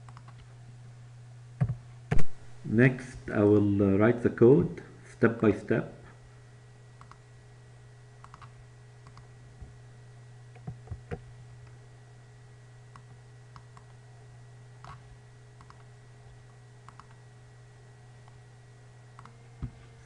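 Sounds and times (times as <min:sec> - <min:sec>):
computer mouse clicks: 0:00.0 - 0:00.5, 0:07.0 - 0:07.2, 0:08.2 - 0:09.3, 0:15.6 - 0:15.9, 0:16.8 - 0:17.2, 0:19.2 - 0:19.4
steady low hum: 0:00.0 - 0:20.0.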